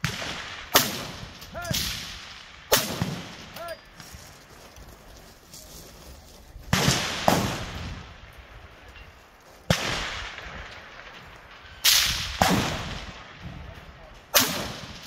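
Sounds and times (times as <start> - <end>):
rifle shots: 0.0 - 3.6, 6.7 - 8.3, 9.7 - 13.5, 14.3 - 15.0.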